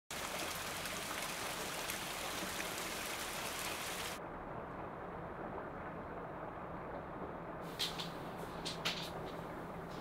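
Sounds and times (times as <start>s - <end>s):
rain hissing: 0.1s - 4.2s
dull low rumble: 4.2s - 10.0s.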